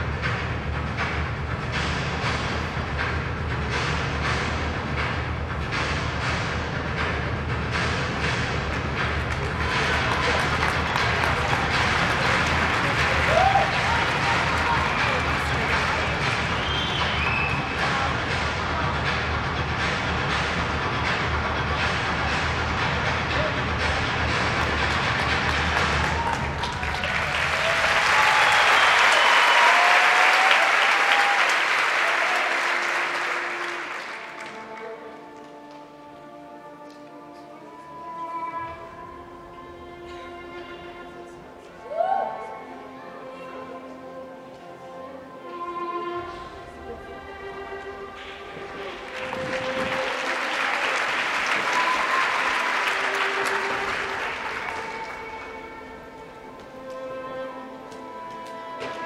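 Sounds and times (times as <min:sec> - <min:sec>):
slow music with long notes: 0:00.0 - 0:59.0
audience applauding: 0:08.7 - 0:18.0, 0:24.6 - 0:34.9, 0:48.7 - 0:55.9.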